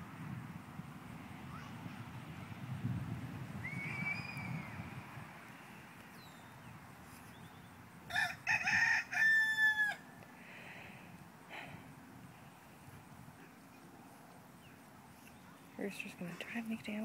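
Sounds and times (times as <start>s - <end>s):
rooster crowing: 8.1s - 10.2s.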